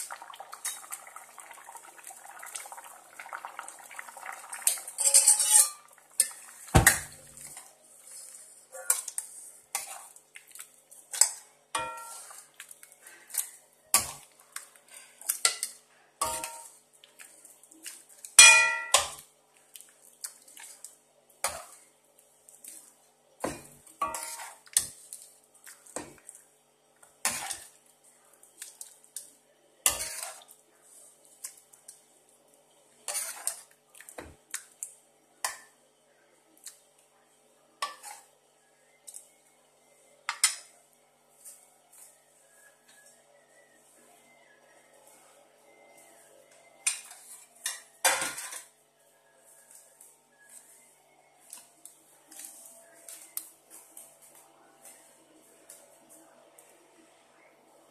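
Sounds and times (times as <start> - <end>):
steel ladle clinking on pan: 4.9 - 5.9, 11.8 - 12.3, 18.4 - 19.2, 23.5 - 24.6.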